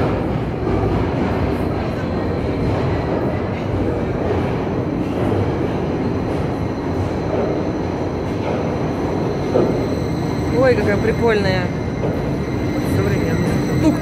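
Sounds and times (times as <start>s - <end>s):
train rumbling in a tunnel: 0.0s - 14.0s.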